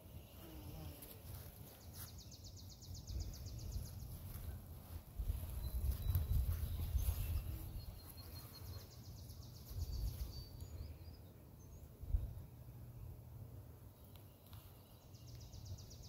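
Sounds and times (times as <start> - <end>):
faint bird chirps: 1.7 - 13.2
wind rumbling on microphone: 3.0 - 8.1, 9.6 - 11.0, 11.9 - 12.6.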